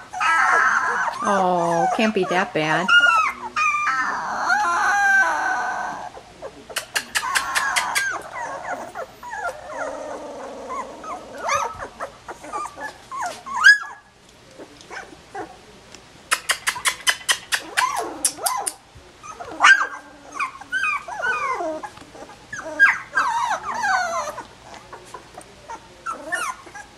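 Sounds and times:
puppies whining and yelping: 0.0s - 15.6s, 16.3s - 26.9s
quick run of clicks: 16.3s - 18.8s.

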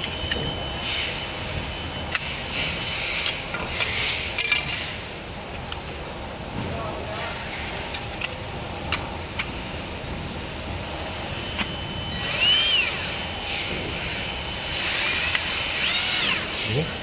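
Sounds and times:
power drill whine: 11.4s - 16.7s.

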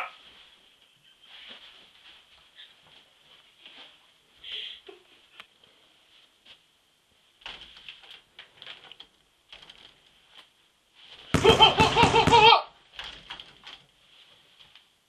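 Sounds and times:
faint taps and shuffles: 0.2s - 6.8s.

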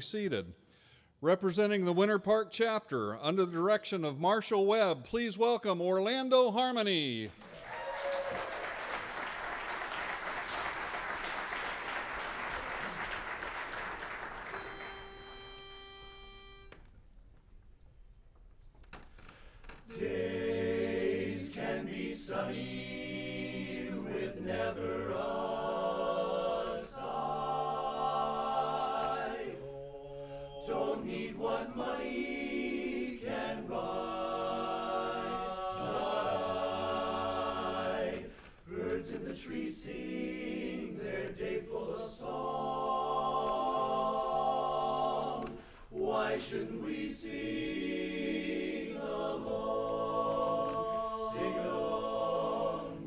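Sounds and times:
men's chorus singing a cappella: 19.9s - 53.0s.

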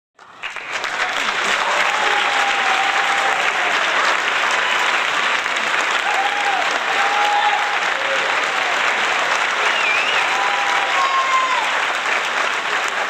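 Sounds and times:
crowd clapping and cheering: 0.2s - 13.0s
long held cheer or whistle: 1.6s - 3.8s, 6.0s - 8.2s, 9.5s - 11.8s.

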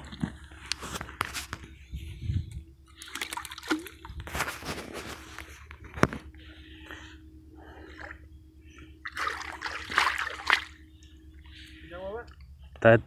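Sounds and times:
water splashing among grass: 3.0s - 4.6s, 9.0s - 10.8s.

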